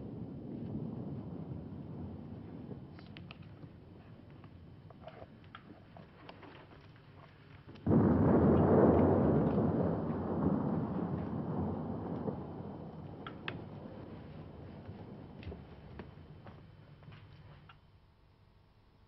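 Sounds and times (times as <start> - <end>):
low hiss: 0.0 - 19.0
faint clicks: 2.9 - 3.7, 13.2 - 13.7
loud explosion: 7.8 - 15.2.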